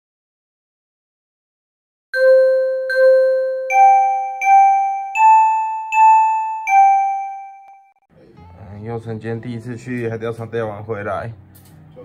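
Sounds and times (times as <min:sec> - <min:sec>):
bell-like chime jingle: 0:02.2 - 0:07.9.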